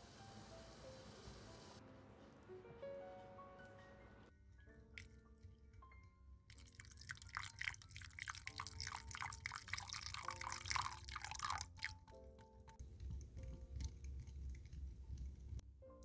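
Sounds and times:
liquid splashing: 6.5s - 12.8s.

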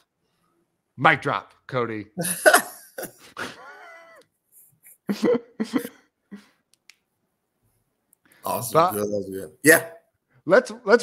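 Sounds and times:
high-pitched laughing: 2.2s - 4.2s.

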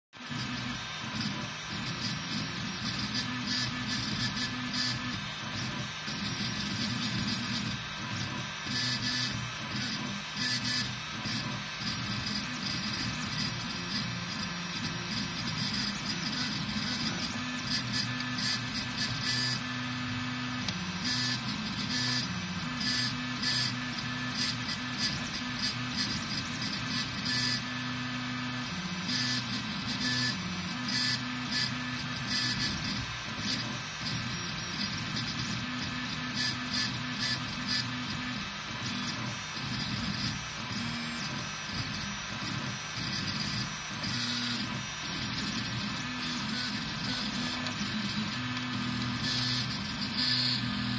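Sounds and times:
stepper motors whining: 0.2s - 50.9s.

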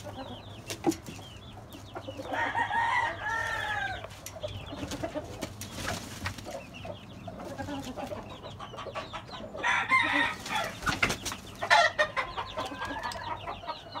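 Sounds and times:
roosters and hens clucking: 0.0s - 14.0s
rooster calls: 9.6s - 10.8s.

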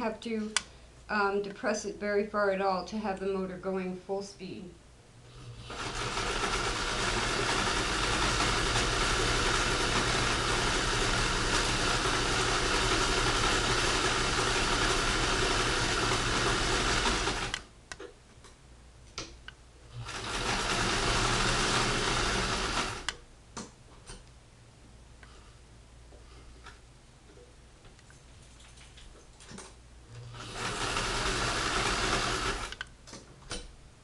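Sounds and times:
sewing machine running fast: 5.5s - 17.6s, 19.9s - 23.1s, 30.2s - 32.8s
sewing machine clicks: 5.7s - 17.6s, 29.5s - 33.7s.

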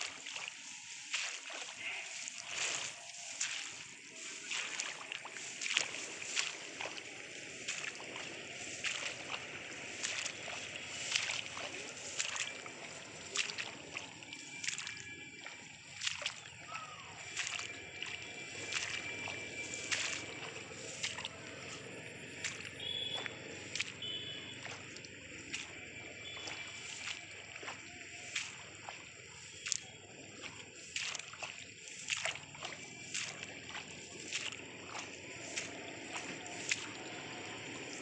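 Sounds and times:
rustling through rice leaves: 0.0s - 14.6s, 17.2s - 22.5s, 31.8s - 38.0s.

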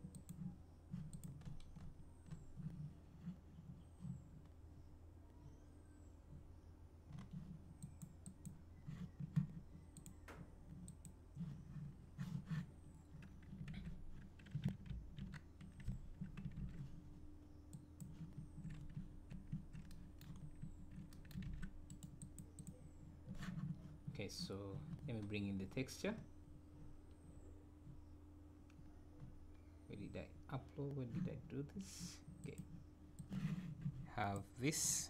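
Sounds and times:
keyboard and mouse clicks: 0.0s - 2.8s, 7.1s - 11.2s, 13.2s - 17.0s, 17.7s - 23.6s
faint low hum: 0.0s - 35.0s.

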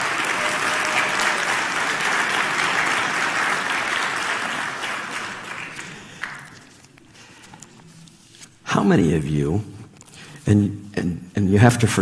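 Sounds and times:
congregation applauding: 0.0s - 6.9s.

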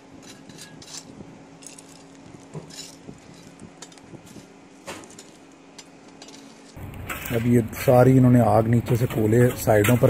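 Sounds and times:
shovel scraping and clinking coals: 0.2s - 7.6s.

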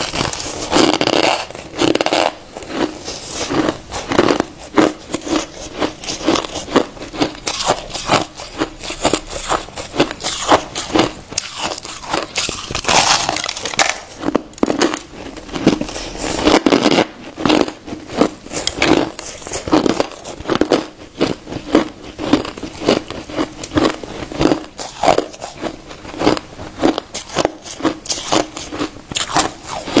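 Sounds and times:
crushed ice crunching: 0.0s - 20.9s.

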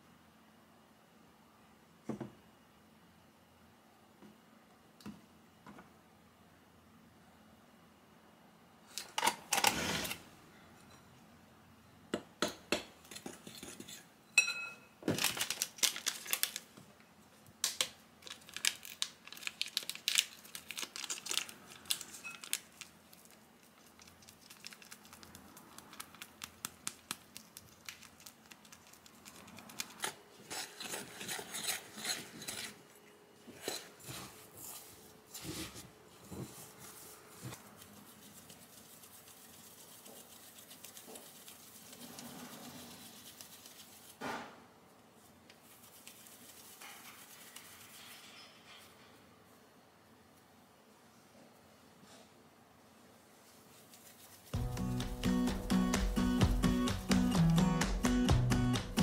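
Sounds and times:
metal spoon scraping glass bowl: 30.0s - 32.8s.

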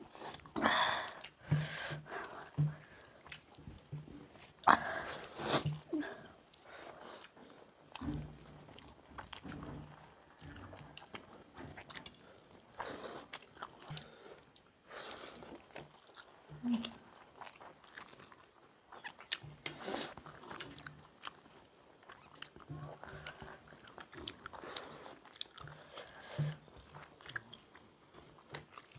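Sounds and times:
people biting and chewing: 6.5s - 28.9s.

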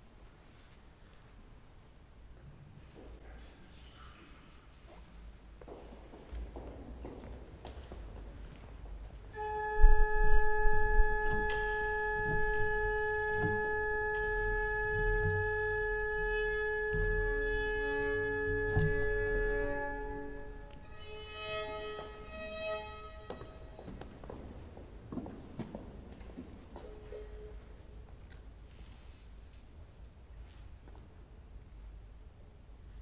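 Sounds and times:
violin tuning: 9.3s - 24.1s.

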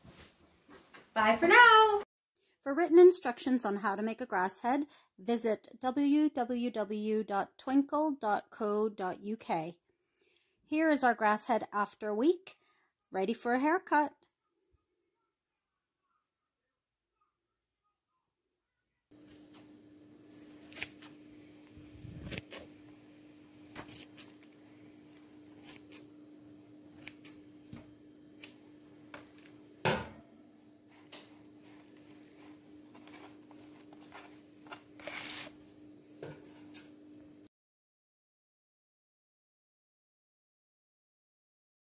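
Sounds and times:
scissors snipping grass: 19.2s - 21.2s, 25.1s - 26.1s, 26.8s - 27.4s, 28.4s - 29.2s
faint steady hum: 19.2s - 37.5s.

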